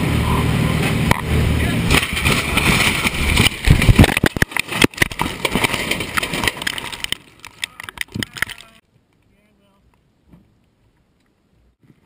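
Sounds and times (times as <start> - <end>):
airframe crashing and tumbling: 1.8 - 8.7
scattered clicks: 3.4 - 9.3.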